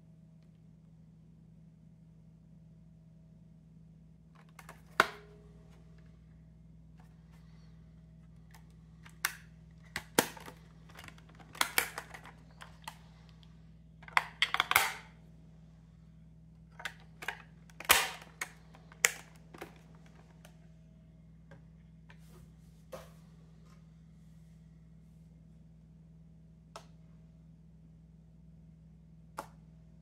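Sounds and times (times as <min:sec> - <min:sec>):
plastic casing clicking and rattling: 0:04.4 - 0:05.3, 0:08.5 - 0:13.0, 0:14.0 - 0:15.1, 0:16.7 - 0:20.5.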